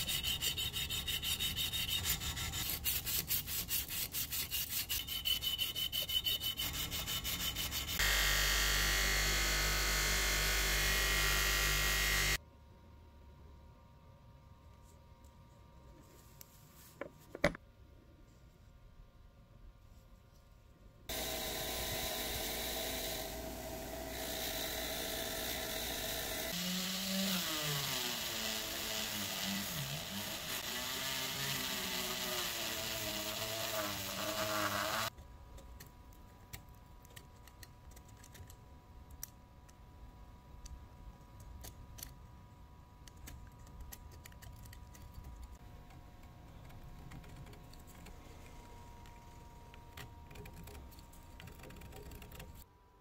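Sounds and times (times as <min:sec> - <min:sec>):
wire wheel grinder whirring: 0:21.1 - 0:35.1.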